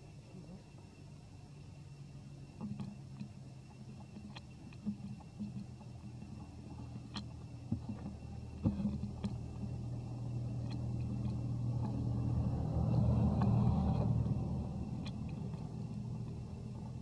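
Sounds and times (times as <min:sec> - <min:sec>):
passing motor vehicle rumble: 0:06.7 - 0:17.0.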